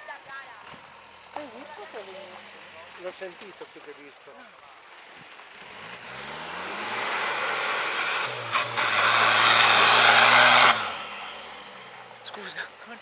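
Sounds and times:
engine revving hard: 5.6s - 12.5s.

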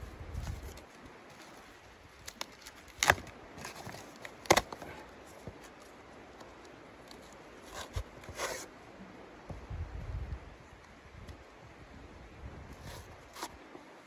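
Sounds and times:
cardboard rustling: 0.3s - 5.9s
cardboard ripping: 2.2s - 5.0s.

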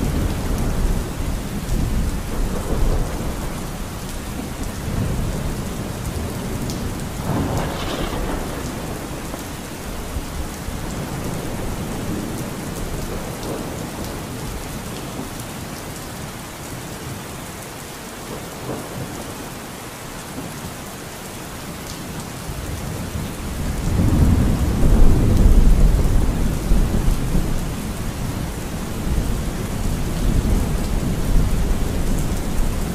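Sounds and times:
thunder rumbling: 0.0s - 15.3s, 22.6s - 32.9s
steady rain: 0.0s - 32.9s.

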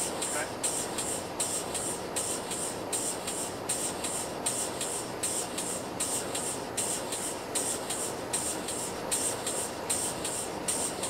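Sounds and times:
rhythmic hissing pulses: 0.0s - 11.0s.

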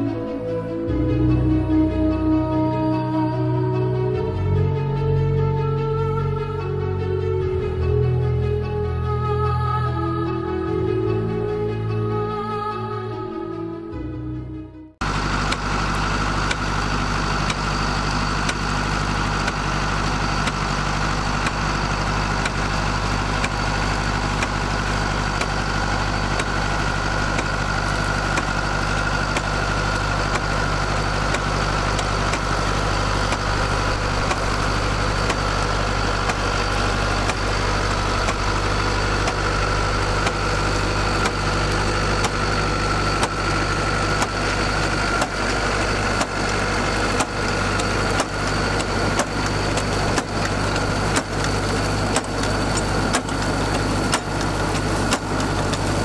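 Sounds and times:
tractor diesel engine running: 0.0s - 14.2s, 15.0s - 56.0s.

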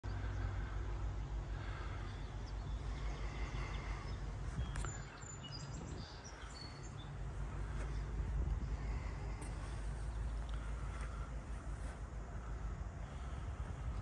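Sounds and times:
steady low rumble: 0.0s - 14.0s
bird chirps: 1.8s - 8.1s.

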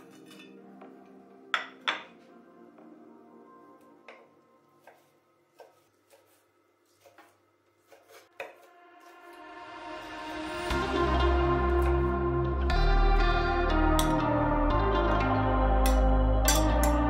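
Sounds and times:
music: 0.0s - 5.3s, 8.3s - 17.0s
knife chopping on wooden board: 4.8s - 8.7s.

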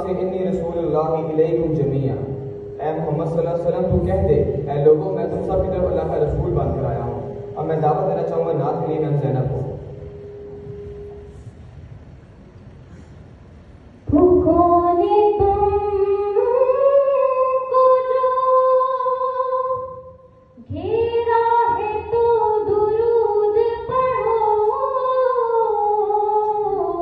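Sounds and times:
girl singing unaccompanied: 14.1s - 20.0s, 20.6s - 27.0s.

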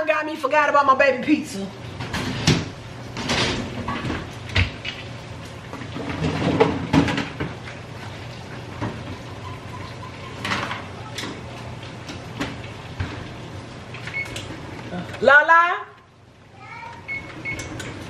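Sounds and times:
dishes clattering: 8.8s - 11.4s.

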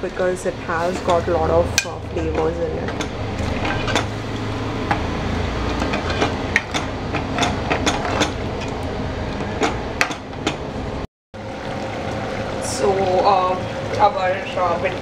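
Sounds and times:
metal ladle scraping steel pot: 1.8s - 4.2s, 5.6s - 8.7s.

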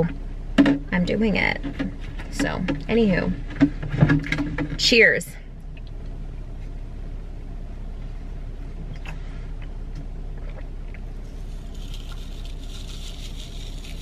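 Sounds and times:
powder packet crinkling: 11.4s - 14.0s.

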